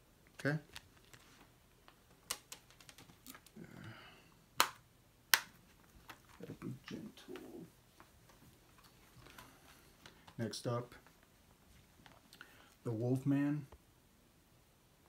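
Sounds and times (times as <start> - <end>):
soft handling rustle: 0.4 - 3.9, 5.5 - 13.8
plastic case clicks and snaps: 4.6 - 6.2.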